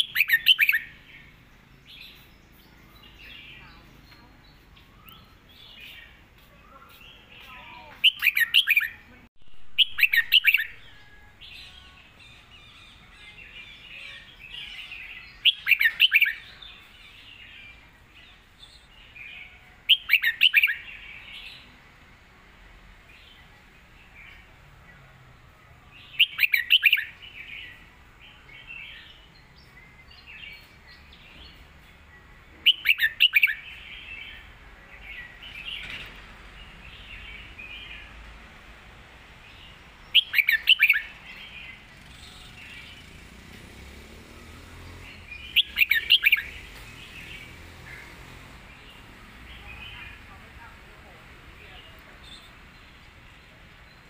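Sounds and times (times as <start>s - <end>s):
bird whistled song phrases: 0.0s - 0.9s, 8.0s - 9.0s, 32.6s - 33.7s, 40.2s - 41.1s
soft bird twittering: 40.1s - 43.3s, 44.5s - 50.3s.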